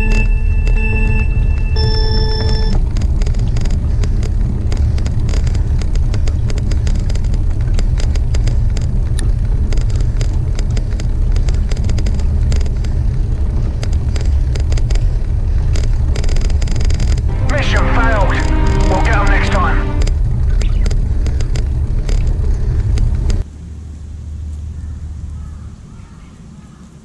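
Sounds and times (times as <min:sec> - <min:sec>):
small clicks and rattles: 0:02.7 - 0:17.3.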